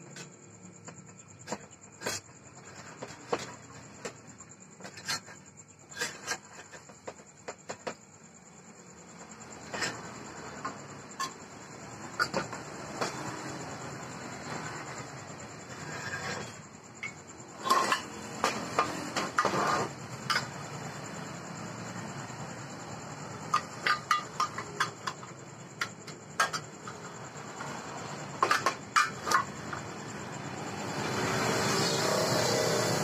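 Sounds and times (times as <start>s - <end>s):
passing vehicle engine: 29.5s - 33.0s.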